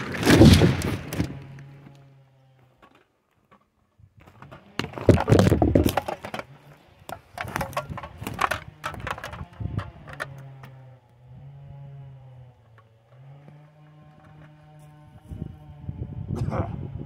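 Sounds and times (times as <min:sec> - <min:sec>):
branches cracking and crunching: 0:00.0 - 0:03.1, 0:04.2 - 0:15.0.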